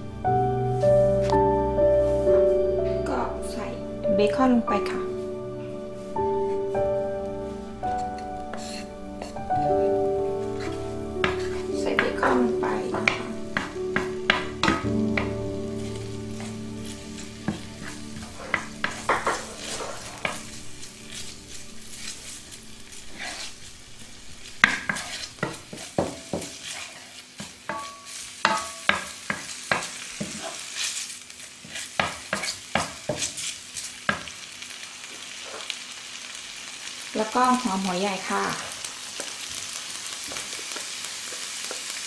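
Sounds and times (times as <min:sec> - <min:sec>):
bacon sizzling in a skillet: 0:05.9 - 0:42.0
spatula scraping and tapping pan: 0:07.9 - 0:23.8, 0:24.4 - 0:34.3.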